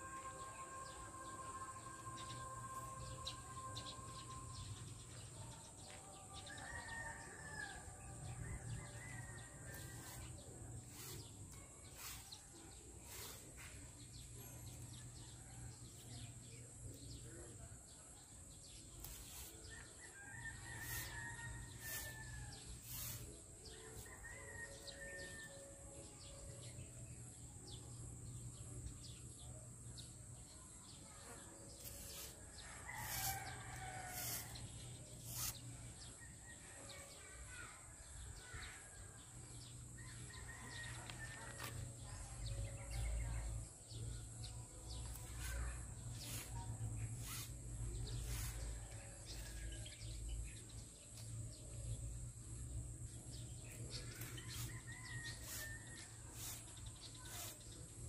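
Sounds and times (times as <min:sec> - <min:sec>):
rooster crowing: 0:20.2 - 0:22.2, 0:32.6 - 0:34.5.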